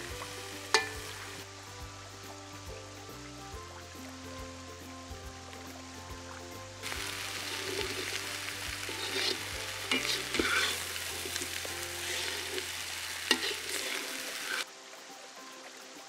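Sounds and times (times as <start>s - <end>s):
vegetables sizzling in oil: 0.0s - 16.0s
spoon clinking on pan: 0.7s - 1.2s
metal spoon scraping a pan: 0.7s - 1.4s, 7.4s - 14.7s.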